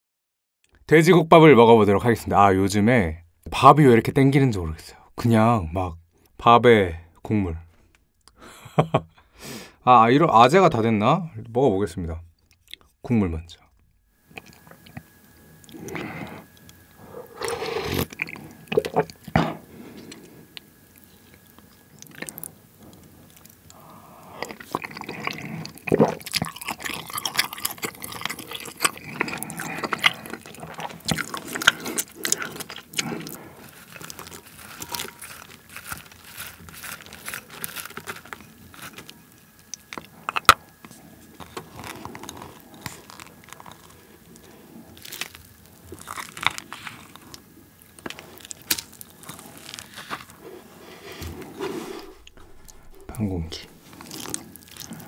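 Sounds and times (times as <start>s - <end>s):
chewing: 14.2s - 55.0s
spoon scraping ceramic bowl: 34.6s - 35.6s.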